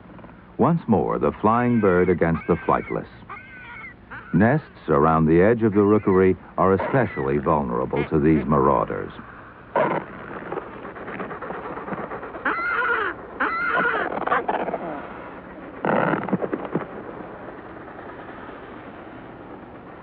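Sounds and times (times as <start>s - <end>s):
steady low hiss: 0.0s - 20.0s
penguins calling: 0.8s - 9.2s, 9.8s - 17.7s
skua crying: 0.9s - 9.1s, 9.7s - 17.0s.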